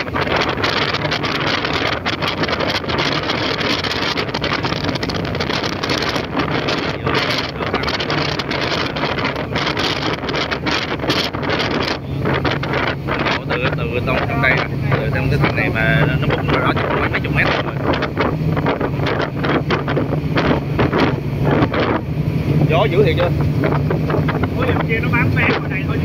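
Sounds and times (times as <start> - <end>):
ferry engine drone: 0.0 - 26.0
wind buffeting microphone: 0.0 - 26.0.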